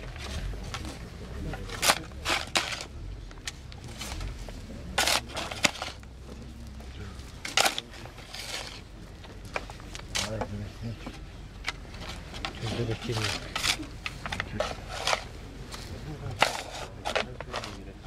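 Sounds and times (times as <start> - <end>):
spade scraping soil: 1.5 - 2.9, 3.8 - 6.2, 7.4 - 8.9, 11.9 - 18.0.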